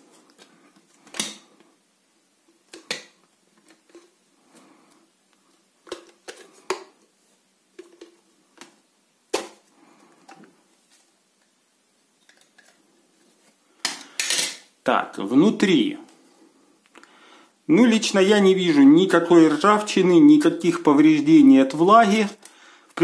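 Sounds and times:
hands handling and rubbing: 0:02.4 - 0:14.2.

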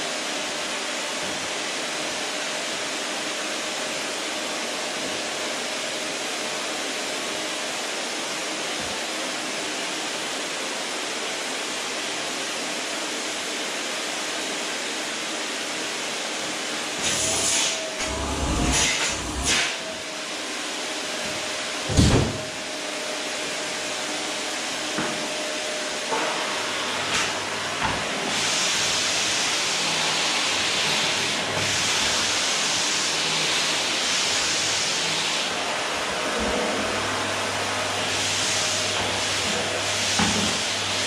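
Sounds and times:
vacuum cleaner suction hiss: 0:00.0 - 0:41.0
thump: 0:21.9 - 0:22.4.

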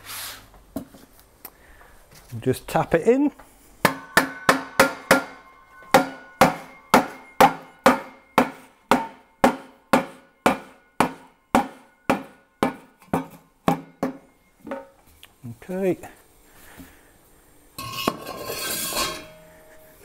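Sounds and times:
hammer tapping on metal: 0:03.8 - 0:15.0
short metallic ring: 0:04.0 - 0:09.4.

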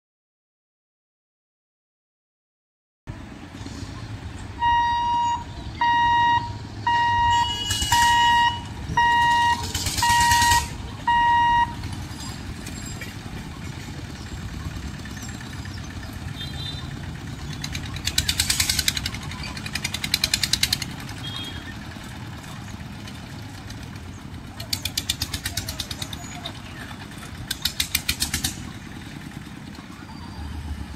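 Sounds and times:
engines passing close by: 0:03.1 - 0:30.9
light road traffic: 0:03.1 - 0:30.9
high electronic beeps: 0:04.6 - 0:11.8.

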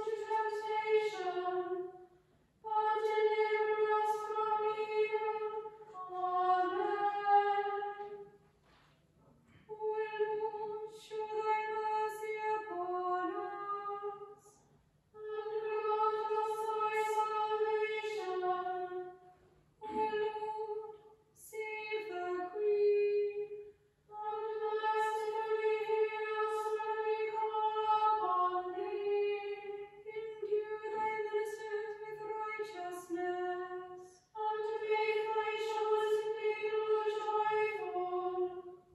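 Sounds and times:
women's choir singing: 0:00.0 - 0:08.3, 0:15.2 - 0:19.2, 0:24.2 - 0:38.8.

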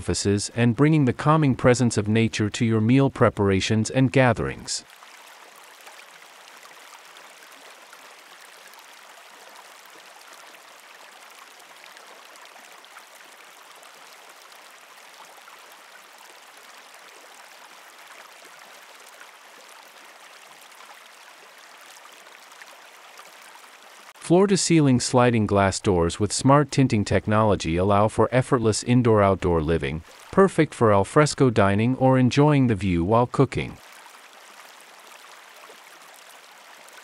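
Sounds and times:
stream water rushing: 0:04.8 - 0:26.6, 0:30.0 - 0:31.3, 0:32.4 - 0:37.0.

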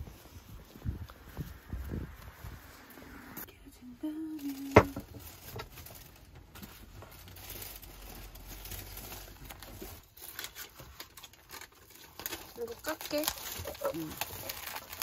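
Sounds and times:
person humming: 0:03.5 - 0:05.0
plastic bag rustling: 0:04.1 - 0:15.0.

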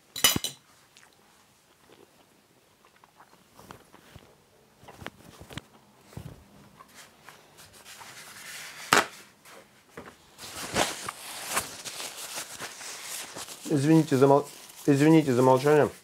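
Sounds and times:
paper towel rustling: 0:04.9 - 0:16.0
paper towel tearing: 0:10.4 - 0:16.0.

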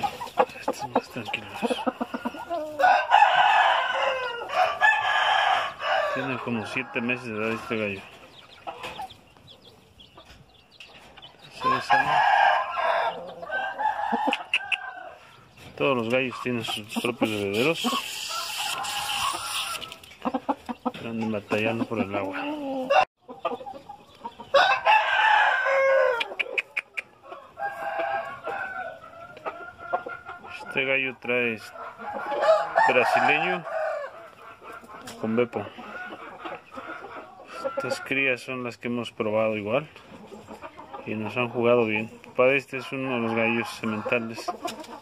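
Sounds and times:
rooster crowing: 0:02.1 - 0:07.7, 0:11.6 - 0:15.2, 0:24.5 - 0:26.4, 0:27.3 - 0:29.0, 0:32.1 - 0:34.2.

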